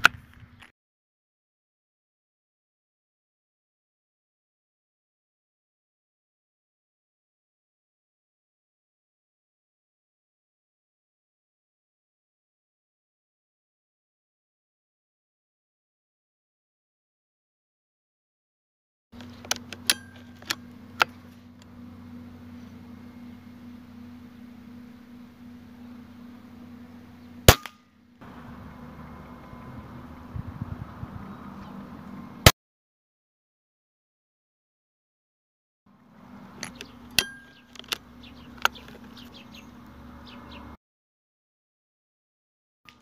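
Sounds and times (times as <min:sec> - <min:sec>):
steady low hum: 0:19.2 - 0:32.5
metallic ring: 0:19.8 - 0:20.5, 0:36.6 - 0:37.8
small birds chirping: 0:25.7 - 0:27.5, 0:30.2 - 0:32.2, 0:36.0 - 0:40.8
air rifle firing: 0:27.5 - 0:27.8.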